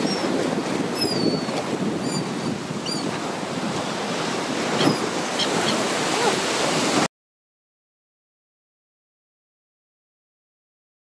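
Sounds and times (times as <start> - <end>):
sea waves breaking: 0.0 - 7.1
wind buffeting microphone: 0.0 - 7.1
gull calls: 4.8 - 6.4.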